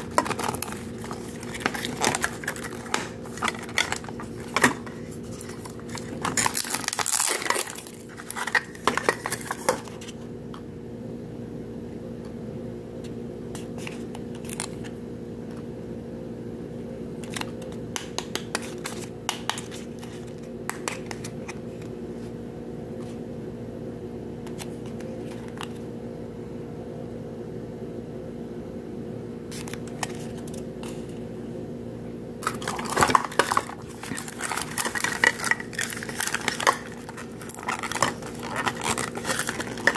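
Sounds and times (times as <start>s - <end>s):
foil paper wrapping crinkling: 0.0s - 10.2s, 32.4s - 39.9s
steady low hum: 0.0s - 39.9s.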